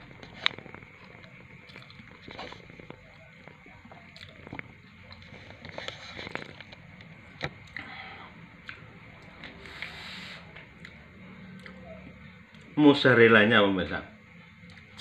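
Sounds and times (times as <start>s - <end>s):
mouth clicks and crackles: 0.0s - 7.9s
person chewing: 0.1s - 6.8s, 7.4s - 10.0s, 10.8s - 11.0s, 11.6s - 11.8s.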